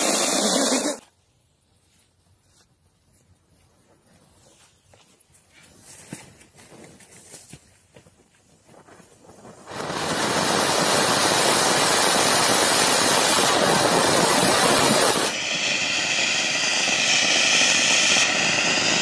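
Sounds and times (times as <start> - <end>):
firework fountain hissing: 0.0 - 1.1, 9.3 - 19.0.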